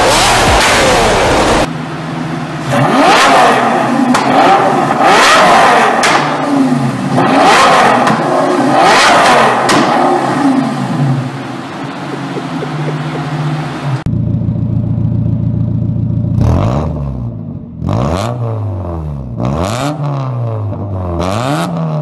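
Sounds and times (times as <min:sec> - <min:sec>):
car engine revving: 0:00.0 - 0:22.0
exhaust pops: 0:11.9 - 0:14.1.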